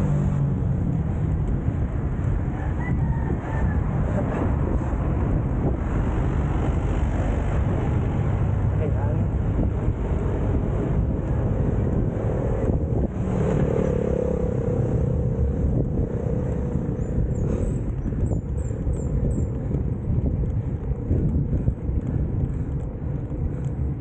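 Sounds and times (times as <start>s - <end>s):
tyres rolling on asphalt: 0.0s - 24.0s
wind buffeting microphone: 0.0s - 24.0s.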